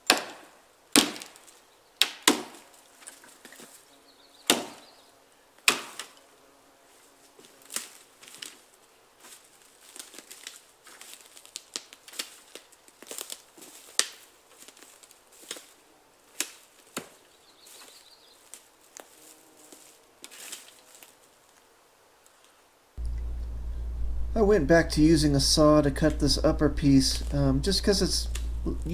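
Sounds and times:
footsteps snapping dry twigs: 0.2 - 3.9, 5.6 - 6.2, 7.4 - 22.6, 28.2 - 28.8.

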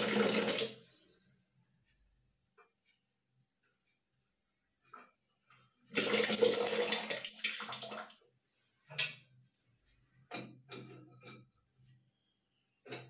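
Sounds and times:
metal fittings knocking and scraping: 10.2 - 12.0.

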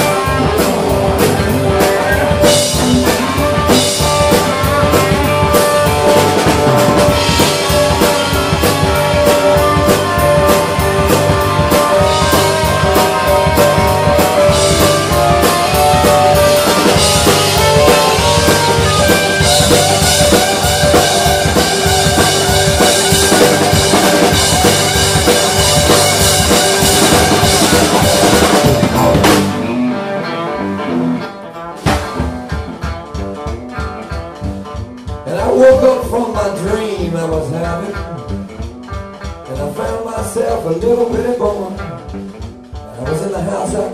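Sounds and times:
drum hits: 0.0 - 29.8, 31.8 - 36.4
rock band playing: 0.0 - 43.9.

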